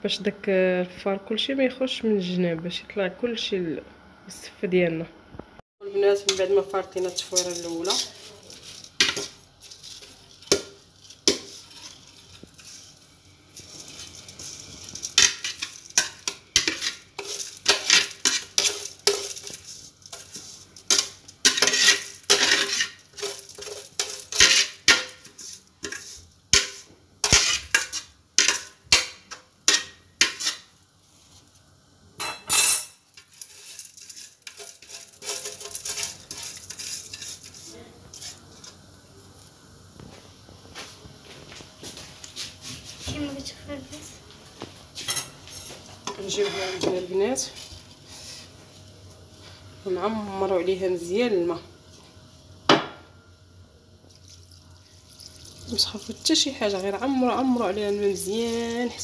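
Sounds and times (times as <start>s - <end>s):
scraping against dish: 45.0s - 47.0s.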